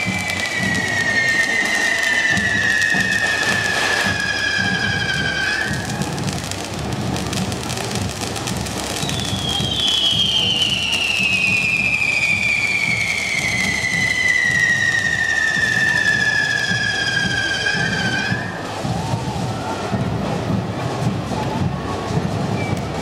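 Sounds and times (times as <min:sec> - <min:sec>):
whistling firework falling in pitch: 0:00.0 - 0:20.1
firework fountains hissing and crackling: 0:00.0 - 0:23.0.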